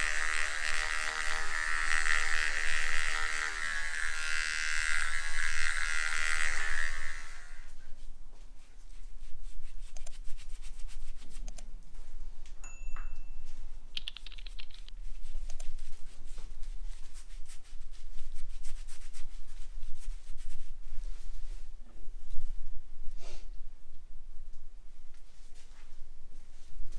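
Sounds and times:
brush scratching on scalp: 0.0 - 7.7, 8.6 - 11.5, 15.0 - 21.2.

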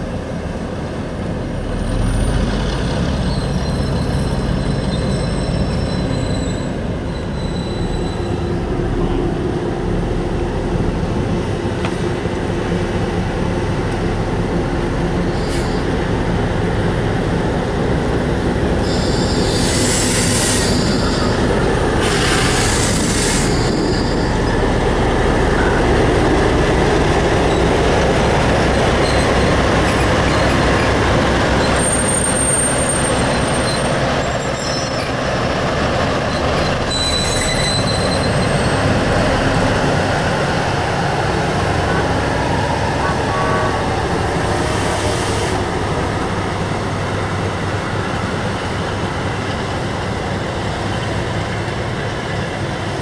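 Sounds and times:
diesel locomotive engines running: 0.0 - 53.0
train wheels rumbling on rails: 0.0 - 53.0
high wheel squeals: 1.8 - 8.6, 18.8 - 24.7, 28.9 - 39.2.

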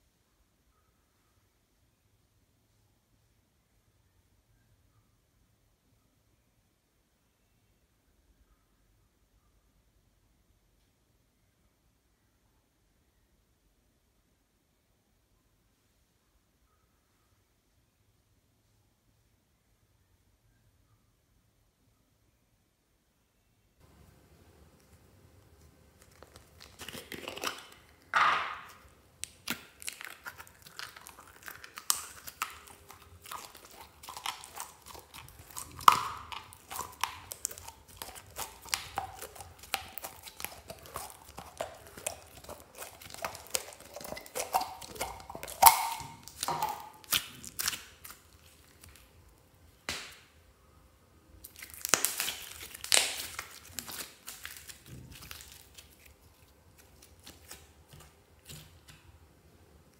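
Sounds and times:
slime crackling and squishing: 24.8 - 49.4, 51.4 - 59.2
sharp loud slime pops: 45.4 - 47.8.

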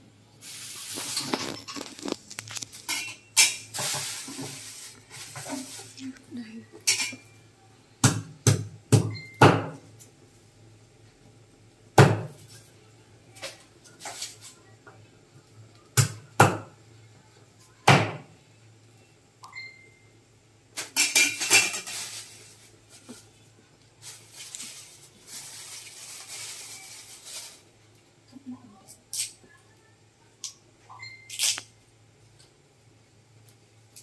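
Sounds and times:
rustling: 0.4 - 3.0, 3.7 - 6.4, 24.0 - 27.7.

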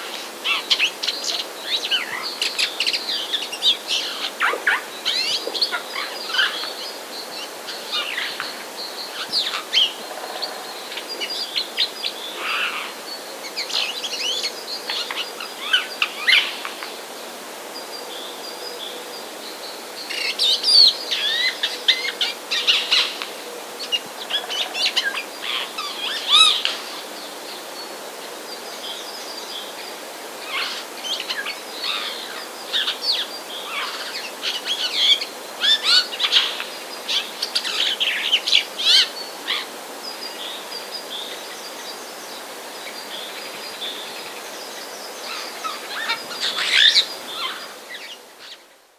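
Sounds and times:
birds chirping and calling: 42.8 - 48.7.

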